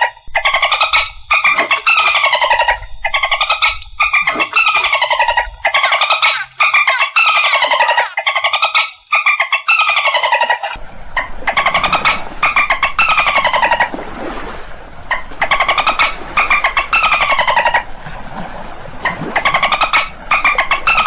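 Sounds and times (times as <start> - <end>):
dolphin squawks: 0.0 - 13.9, 15.1 - 17.9.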